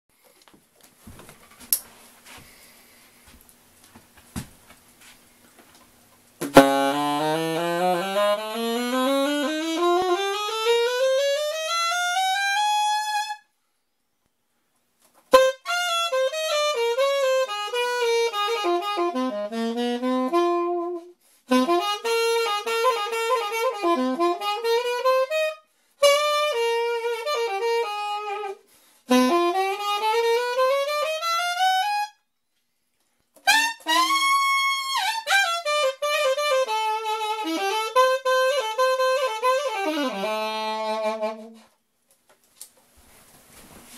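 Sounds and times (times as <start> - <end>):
alto saxophone solo: 6.4 - 13.5, 15.3 - 32.3, 33.4 - 41.8.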